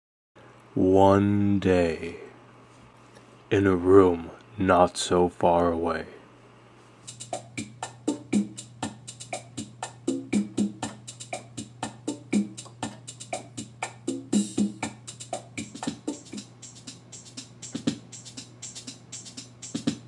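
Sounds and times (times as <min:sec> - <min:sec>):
steady low hum: 0:00.4 - 0:20.0
drum machine beat: 0:07.1 - 0:20.0.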